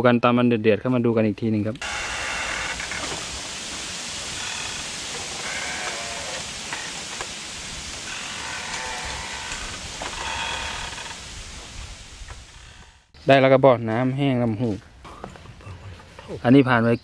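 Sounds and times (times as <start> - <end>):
steady hiss: 1.8 - 17.0
animal calls: 4.3 - 7.2, 7.9 - 11.3.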